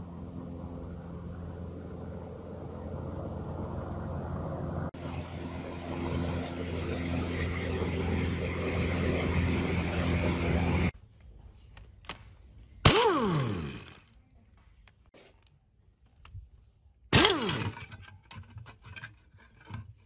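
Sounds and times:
air motor whine winding down: 0.0s - 10.9s, 12.9s - 14.0s
steady mechanical hum: 0.0s - 20.0s
pneumatic wrench burst: 12.8s - 14.0s, 17.1s - 17.9s.

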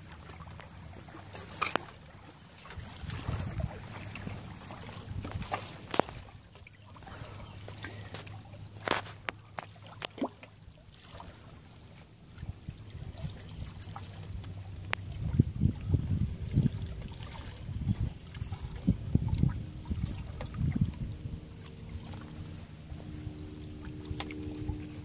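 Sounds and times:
wind buffeting microphone: 2.7s - 6.4s, 14.9s - 25.0s.

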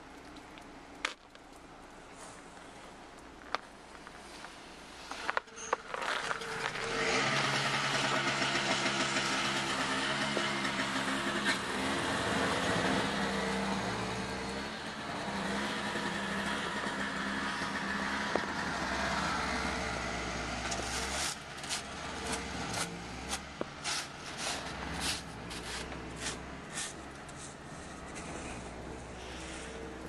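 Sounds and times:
engine running: 5.2s - 30.0s
boots crunching through snow: 24.0s - 27.6s.

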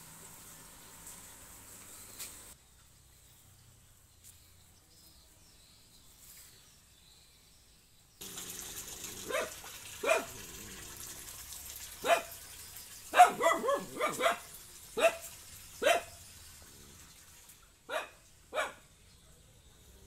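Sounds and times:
dog barking: 9.2s - 10.5s, 12.0s - 12.4s, 13.1s - 16.2s, 17.9s - 18.9s.

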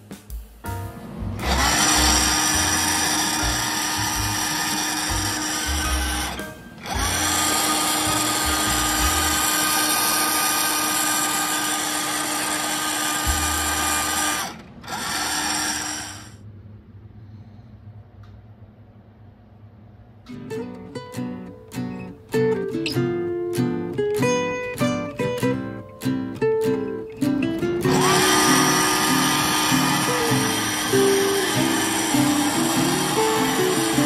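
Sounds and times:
electric power tool whirring: 1.4s - 16.4s, 27.8s - 34.0s.

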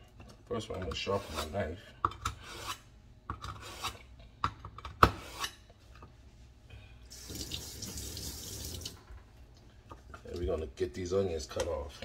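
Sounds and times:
knife drawn across sharpener: 2.4s - 2.9s, 3.6s - 4.0s
tap water running into sink: 7.2s - 9.0s.

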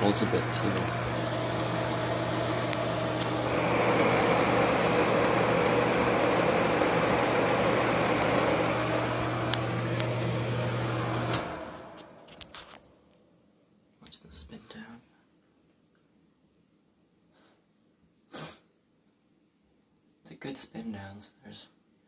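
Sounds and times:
fan air rushing: 0.0s - 12.3s
exhaust fan motor hum: 0.0s - 12.8s.

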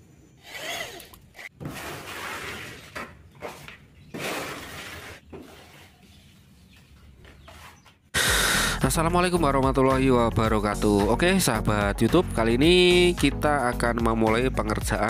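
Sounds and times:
trowel scraping plaster on wall: 1.5s - 6.2s.

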